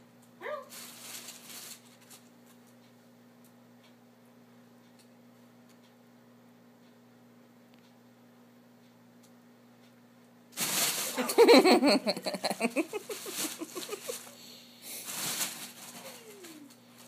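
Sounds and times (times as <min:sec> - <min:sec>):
fabric cat tunnel rustling: 0:10.6 - 0:11.4, 0:12.9 - 0:14.3, 0:15.0 - 0:16.7.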